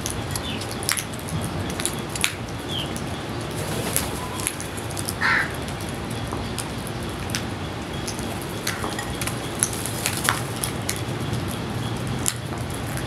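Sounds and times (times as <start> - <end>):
crow cawing: 5.2 - 5.6.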